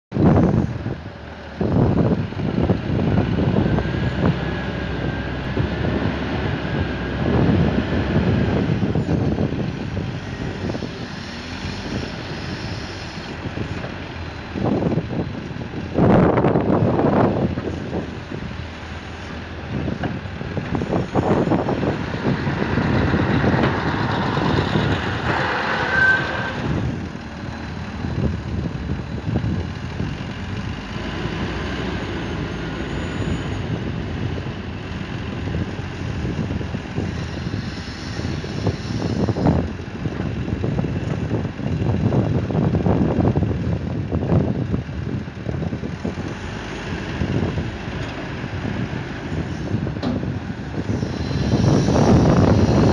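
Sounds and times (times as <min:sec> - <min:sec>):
diesel engine working: 0:00.1 - 0:52.9
wind buffeting microphone: 0:00.1 - 0:52.9
load tipping into truck: 0:49.7 - 0:50.5.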